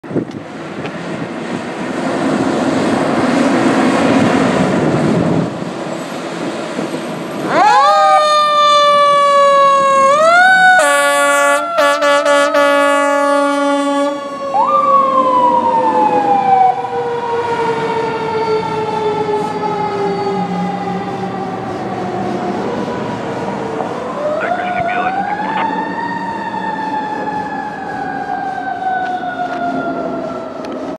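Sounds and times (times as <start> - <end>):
fire engine rumble: 14.2 - 30.9.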